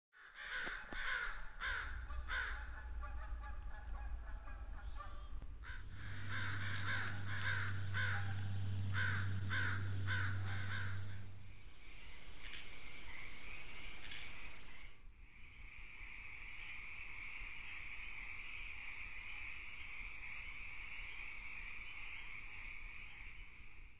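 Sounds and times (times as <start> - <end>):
crows cawing: 0.2 - 11.4
crickets chirring: 0.4 - 23.6.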